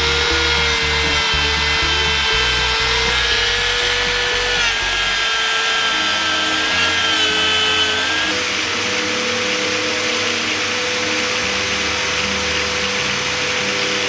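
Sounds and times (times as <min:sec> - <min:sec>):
background music with bass beat: 0:00.0 - 0:05.2
rotary tool whining and grinding: 0:00.0 - 0:14.0.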